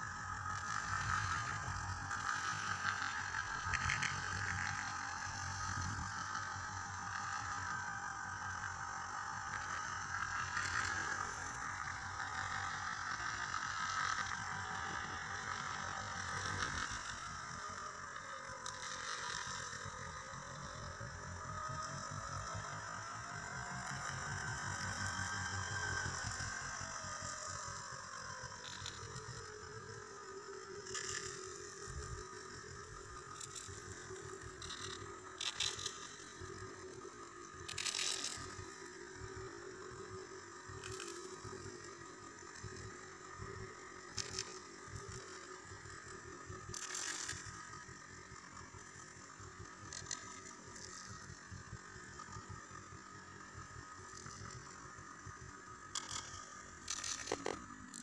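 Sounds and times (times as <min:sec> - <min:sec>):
vehicle engine hum: 0:00.0 - 0:58.0
short clicks and rattles: 0:55.8 - 0:58.0.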